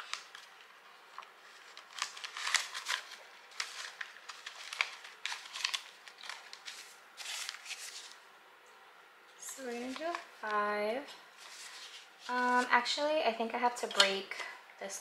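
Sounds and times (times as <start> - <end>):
banknotes rustling: 0.0 - 8.2, 9.4 - 12.9.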